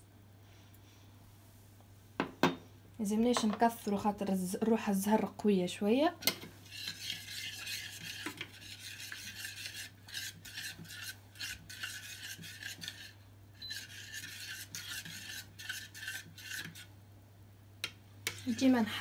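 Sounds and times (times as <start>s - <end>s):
metal spoon scraping saucepan: 6.2s - 16.9s, 18.2s - 19.0s.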